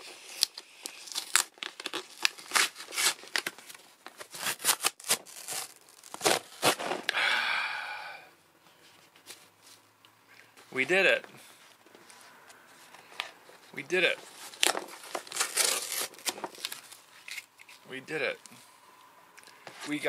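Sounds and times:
cardboard box tearing: 0.3s - 3.6s, 4.2s - 7.1s, 14.3s - 17.4s.

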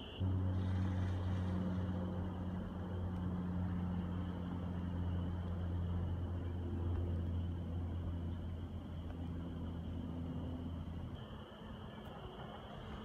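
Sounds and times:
faint high steady tone: 0.0s - 0.4s, 3.7s - 13.0s
low engine drone: 0.0s - 13.0s.

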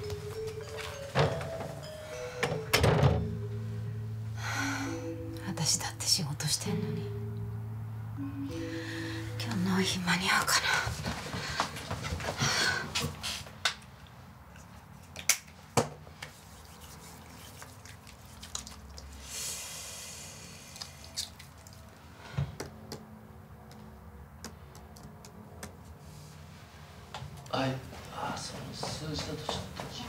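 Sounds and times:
hands rubbing: 14.6s - 19.2s
laptop keys typing: 23.7s - 25.8s.

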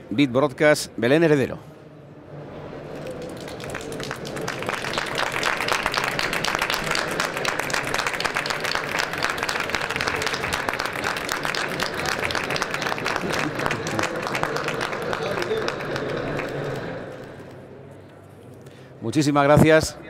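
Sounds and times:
audience applause: 2.8s - 17.5s.

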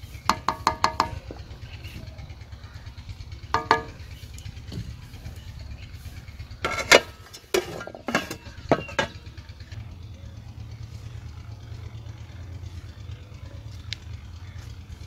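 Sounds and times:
steady low rumble: 1.2s - 15.0s
utensils clanking on metal pot: 3.5s - 4.2s, 6.6s - 9.4s.

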